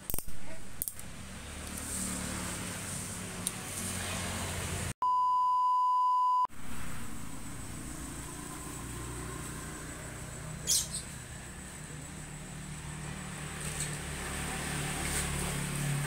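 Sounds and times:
censor bleep tone: 5.0s - 6.5s.

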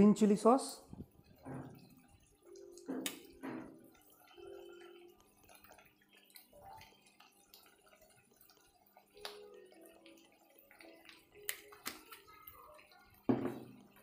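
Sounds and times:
sauce dripping from squeeze bottle: 2.2s - 14.0s.

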